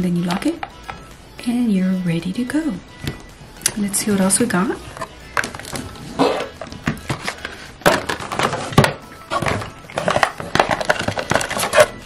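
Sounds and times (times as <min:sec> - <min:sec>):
paper and cardboard rustling: 0:04.9 - 0:12.0.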